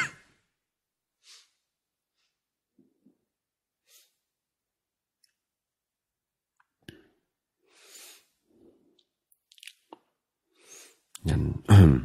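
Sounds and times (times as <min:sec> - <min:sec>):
soft breaths: 0:07.0 - 0:09.1, 0:10.4 - 0:11.1.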